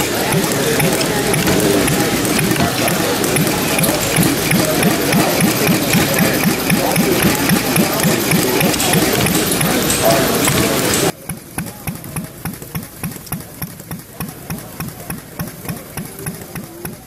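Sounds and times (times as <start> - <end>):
small gas engine running: 0.0 - 11.2
steady background noise: 0.0 - 17.0.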